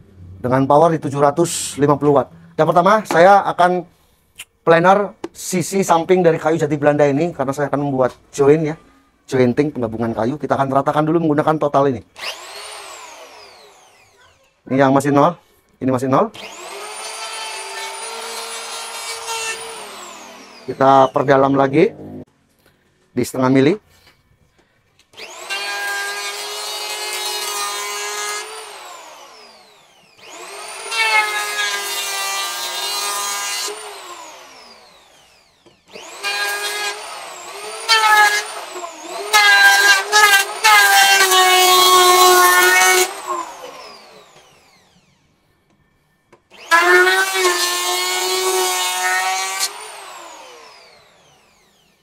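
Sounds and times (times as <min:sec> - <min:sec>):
electric planer shaving wood: 0:12.2 - 0:14.2, 0:16.4 - 0:22.2, 0:25.2 - 0:45.2, 0:46.5 - 0:52.0
planer motor whine: 0:16.4 - 0:22.3, 0:25.2 - 0:45.4, 0:46.5 - 0:52.0.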